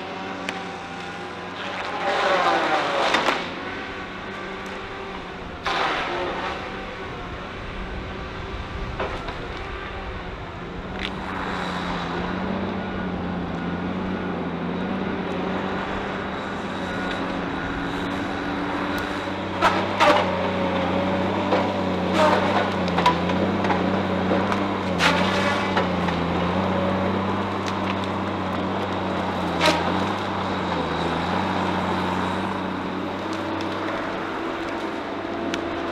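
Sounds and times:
diesel engine running under load: 0.0s - 35.9s
wood cracking and snapping: 21.4s - 26.6s, 27.2s - 35.9s.

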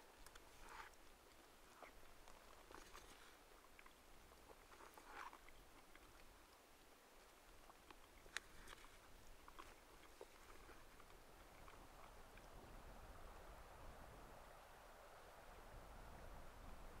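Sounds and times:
faint rustling: 0.0s - 6.2s.

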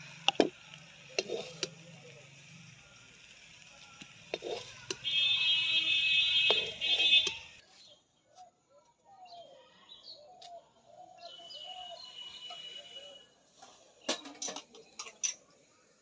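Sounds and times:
metal spatula scraping wok: 1.1s - 1.8s, 4.3s - 5.0s, 6.3s - 7.6s
faint bird chirps: 7.6s - 13.4s.

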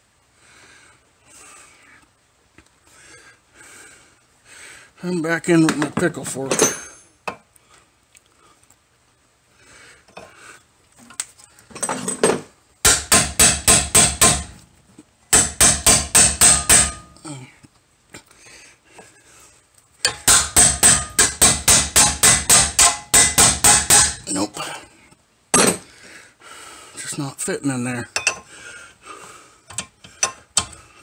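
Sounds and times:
hammer blows on steel: 12.8s - 14.6s, 15.3s - 17.2s, 20.1s - 24.3s.

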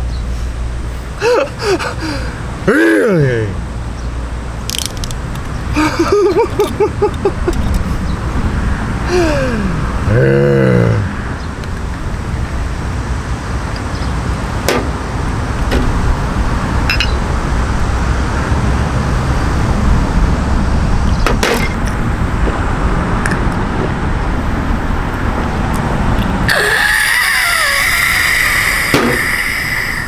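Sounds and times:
road traffic rumble: 0.0s - 30.0s
glass bottle and glasses clinking: 16.9s - 17.2s
high wavering tone: 16.9s - 17.2s.

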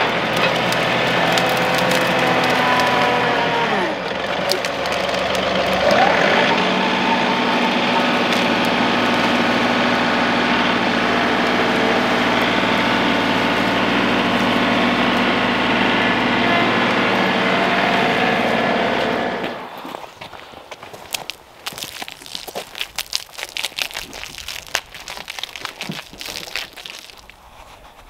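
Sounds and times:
diesel tractor engine running: 0.0s - 19.8s.

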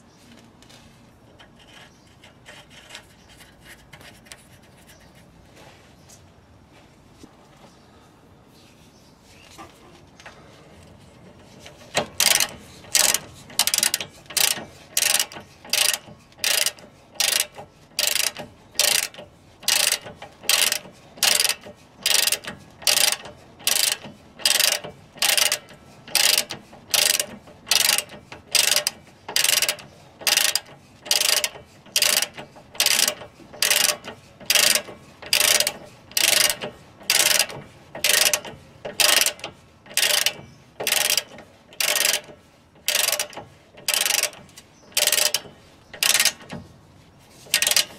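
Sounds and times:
socket ratchet clicking: 12.2s - 44.4s, 45.0s - 46.5s, 47.6s - 47.9s.

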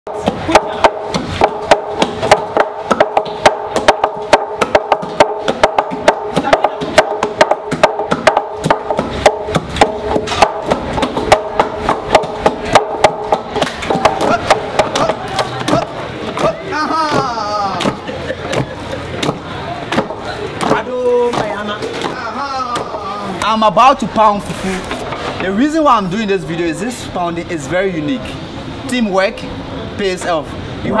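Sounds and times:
pestles thudding into mortar: 0.1s - 23.0s.

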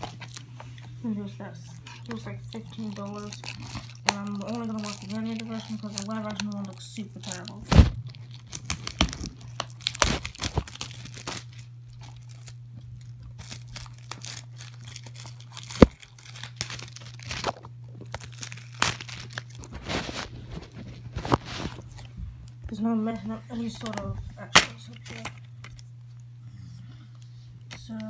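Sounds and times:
plastic wrapping crinkling: 0.0s - 26.3s
steady low hum: 0.0s - 28.0s.

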